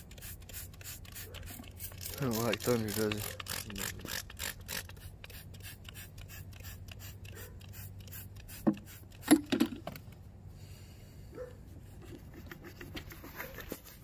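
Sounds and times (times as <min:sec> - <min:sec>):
spray bottle squirting: 0:00.0 - 0:09.7.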